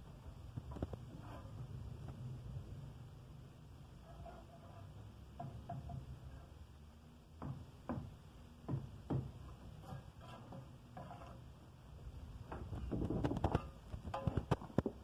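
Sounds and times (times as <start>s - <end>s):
trowel tapping and scraping brick: 7.4s - 11.5s.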